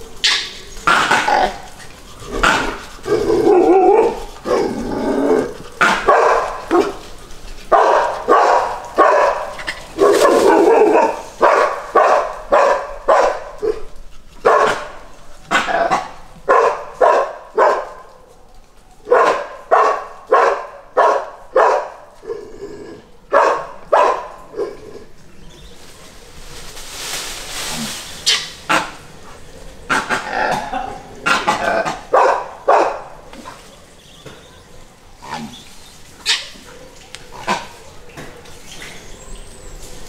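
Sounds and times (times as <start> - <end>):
dogs barking: 0.0 - 4.8, 5.5 - 18.4, 19.0 - 22.4, 23.2 - 24.9, 28.3 - 33.7, 36.2 - 39.5.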